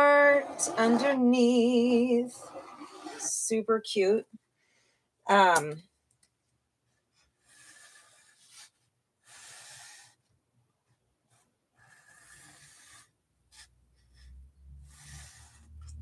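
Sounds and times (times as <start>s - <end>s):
marker drawing on canvas: 0.0s - 3.5s, 7.1s - 16.0s.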